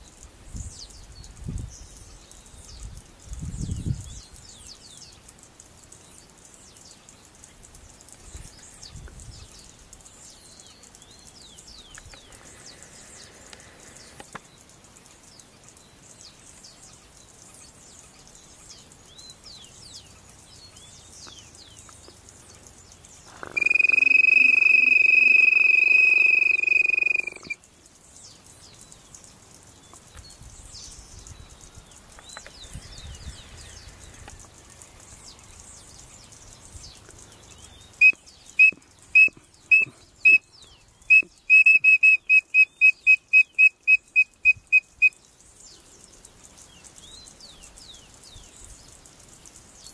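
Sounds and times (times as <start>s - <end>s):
insects chirping: 0.0s - 49.9s
small birds chirping: 0.0s - 49.9s
quail call high whistle: 23.4s - 27.6s, 38.0s - 40.5s, 41.1s - 45.1s.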